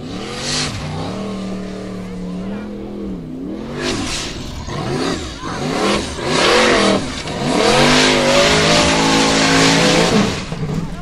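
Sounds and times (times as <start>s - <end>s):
buggy engine revving hard: 0.0s - 11.0s
tyres spinning and throwing dirt: 0.0s - 11.0s.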